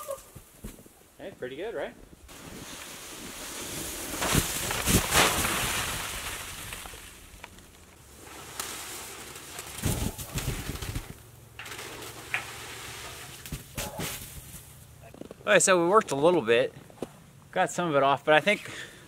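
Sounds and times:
snow sliding off roof: 2.3 - 14.8
snow thuds: 2.3 - 14.8.

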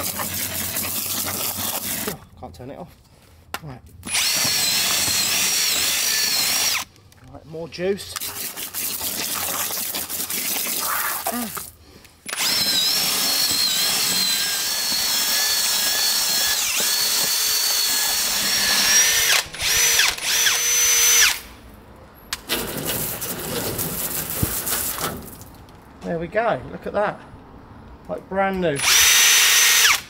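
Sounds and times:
drill mixer whining in bucket: 0.0 - 2.2, 4.1 - 6.9, 12.3 - 21.4, 28.8 - 30.0.

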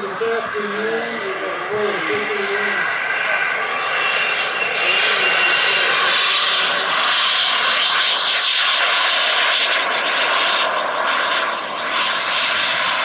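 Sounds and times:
model jet engine whining: 0.0 - 13.0.

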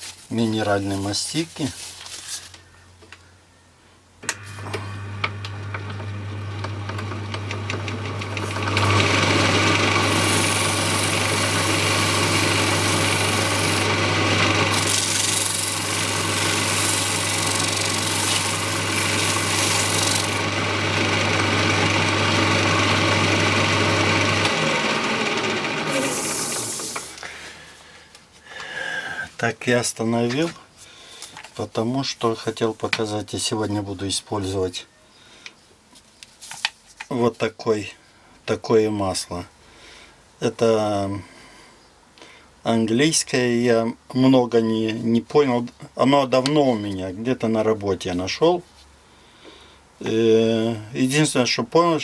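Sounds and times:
wood lathe humming: 4.2 - 27.2
paper towel rubbing spinning bowl: 8.2 - 21.6.

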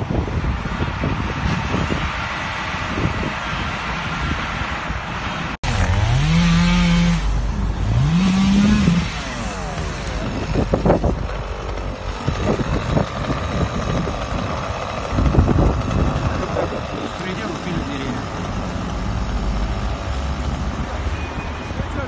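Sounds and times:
engine revving: 5.6 - 22.0.

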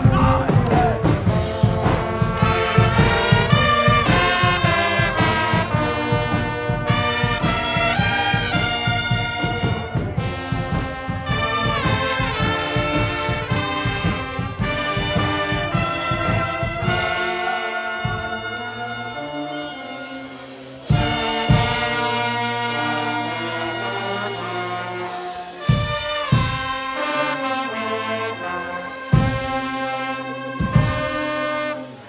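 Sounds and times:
steady drum beat: 0.0 - 31.4
brass band playing: 0.0 - 32.0.

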